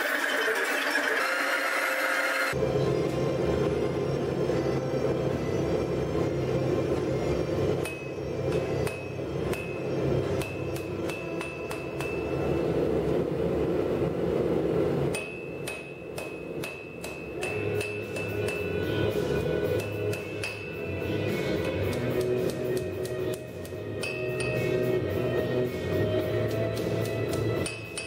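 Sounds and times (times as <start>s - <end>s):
anvil ringing: 7.8s - 12.6s, 15.1s - 22.3s, 24.0s - 24.8s, 27.6s - 28.0s
hammer striking steel on anvil: 7.8s - 12.6s, 15.1s - 25.0s, 26.4s - 28.0s
steady rushing noise: 12.1s - 16.6s.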